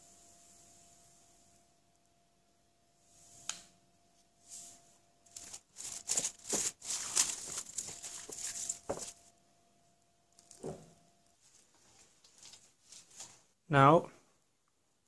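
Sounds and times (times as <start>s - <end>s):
plastic film crinkling: 5.3s - 9.3s, 11.6s - 13.4s.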